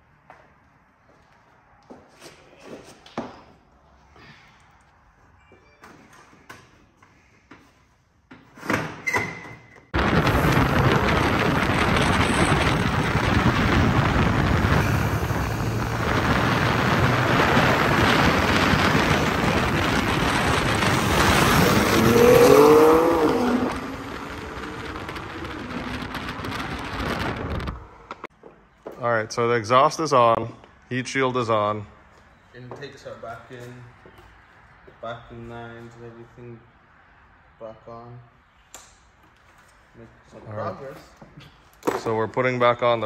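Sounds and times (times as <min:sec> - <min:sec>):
rushing air: 0:10.0 - 0:28.3
sports car engine accelerating: 0:12.2 - 0:27.4.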